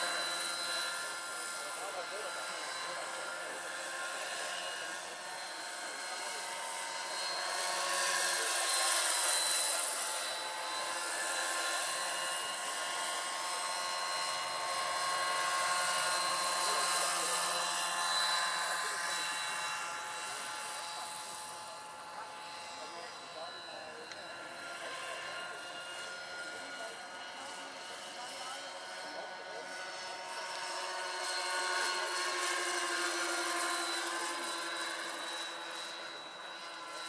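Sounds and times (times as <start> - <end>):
model helicopter motor whine: 0.0 - 37.0.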